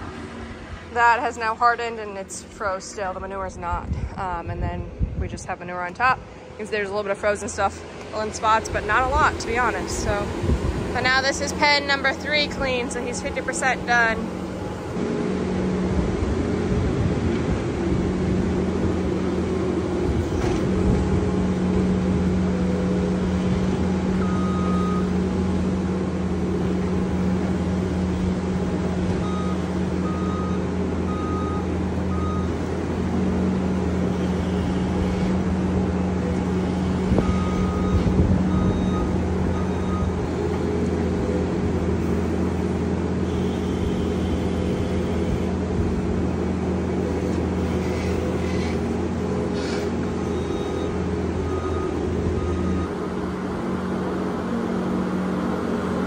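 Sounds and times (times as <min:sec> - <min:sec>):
diesel engine running under load: 0:00.0 - 0:56.0
back-up alarm beeps: 0:24.2 - 0:25.1, 0:29.2 - 0:32.6, 0:36.6 - 0:40.3, 0:50.2 - 0:53.0.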